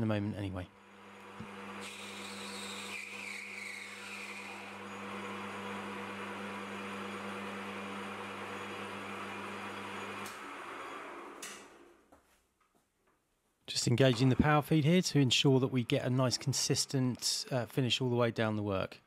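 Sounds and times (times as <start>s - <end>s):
metal lathe humming: 0.8s - 11.9s.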